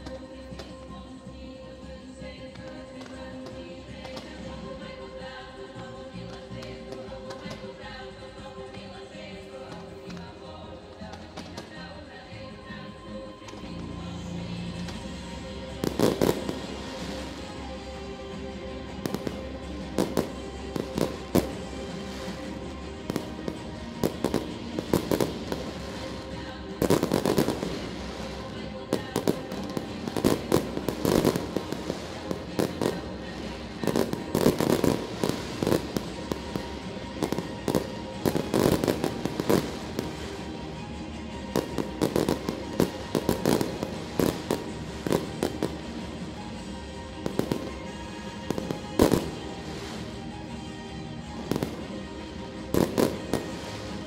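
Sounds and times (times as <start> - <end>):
music playing: 0.0 - 54.0
fireworks bangs and crackling: 13.5 - 54.0.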